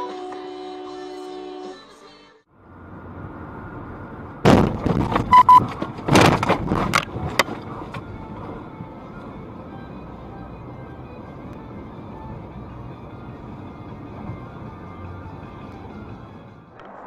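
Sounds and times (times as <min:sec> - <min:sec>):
road and tyre noise: 0:02.4 - 0:17.0
loud bangs and thuds of impact: 0:04.4 - 0:07.0
short beeps: 0:05.3 - 0:05.6.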